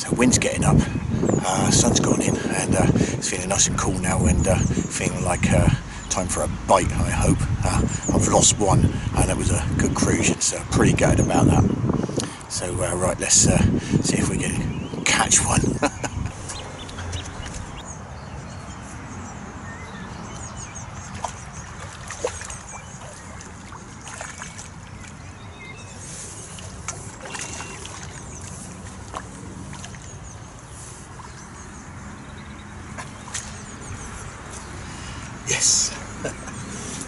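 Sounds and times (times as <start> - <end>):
wind on microphone: 0.0 - 18.8
birds chirping: 0.0 - 37.0
small water splashes: 20.2 - 35.2.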